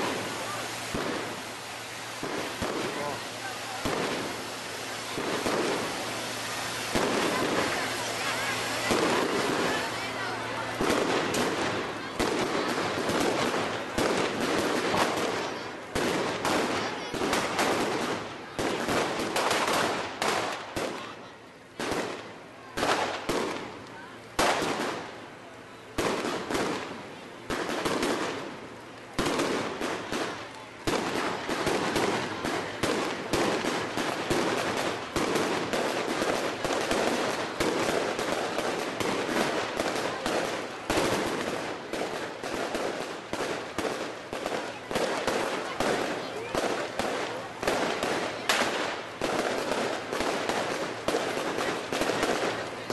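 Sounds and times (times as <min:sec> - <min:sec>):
fireworks bangs and crackling: 0:00.0 - 0:52.9.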